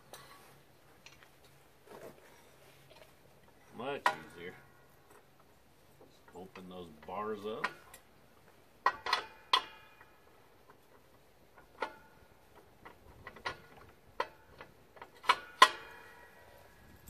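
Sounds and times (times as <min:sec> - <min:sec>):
metal parts clinking and clanking: 0:08.8 - 0:10.1.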